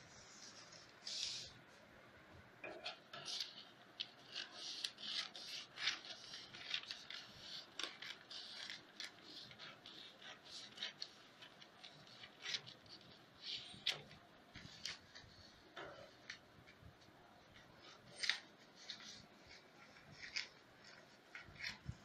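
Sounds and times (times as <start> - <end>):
scissors snipping paper: 3.3 - 13.0.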